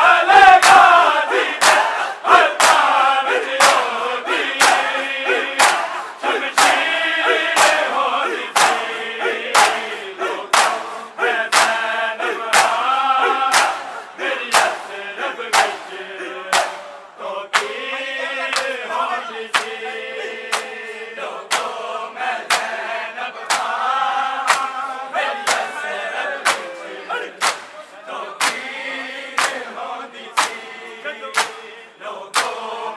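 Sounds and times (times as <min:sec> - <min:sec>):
men chanting a lament: 0:00.0 - 0:32.9
hands slapping chests: 0:00.6 - 0:08.9, 0:09.6 - 0:14.9, 0:15.5 - 0:15.9, 0:16.5 - 0:16.9, 0:17.5 - 0:17.8, 0:19.5 - 0:19.8, 0:20.5 - 0:20.9, 0:21.5 - 0:21.8, 0:22.4 - 0:22.8, 0:23.5 - 0:24.8, 0:25.4 - 0:25.7, 0:26.4 - 0:26.8, 0:27.4 - 0:27.8, 0:28.4 - 0:28.7, 0:29.4 - 0:29.8, 0:30.4 - 0:30.7, 0:31.3 - 0:31.7, 0:32.3 - 0:32.7.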